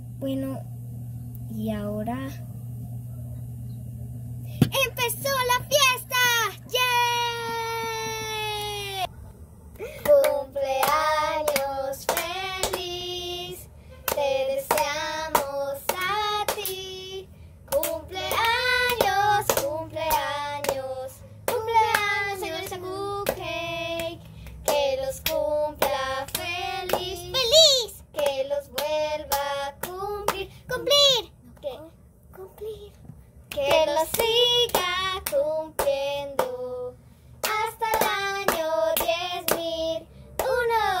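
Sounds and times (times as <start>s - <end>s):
sharp hand claps: 10.0s - 12.9s, 14.1s - 16.8s, 17.7s - 20.8s, 21.5s - 27.2s, 33.5s - 36.6s, 37.4s - 39.7s, 40.4s - 40.8s.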